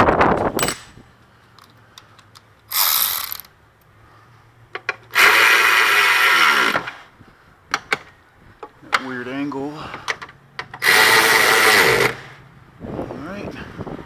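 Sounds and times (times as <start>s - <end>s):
electric ratchet running: 2.7s - 3.5s, 10.8s - 12.3s.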